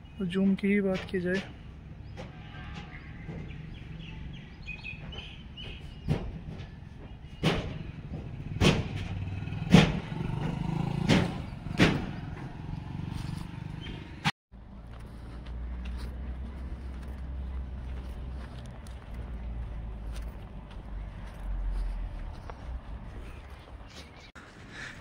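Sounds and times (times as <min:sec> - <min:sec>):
low rumble of traffic: 0:00.0 - 0:25.0
sharp knocks: 0:05.0 - 0:12.6.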